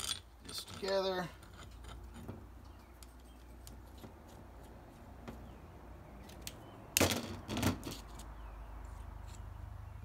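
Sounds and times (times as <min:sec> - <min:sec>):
metal parts clinking and rattling: 0:00.0 - 0:02.4.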